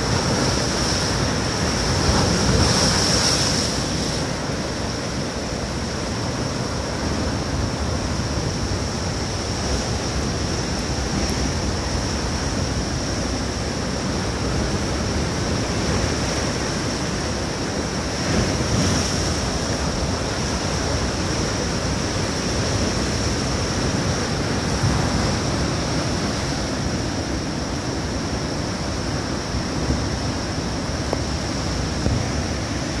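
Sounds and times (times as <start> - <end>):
heavy surf breaking: 0.0 - 33.0.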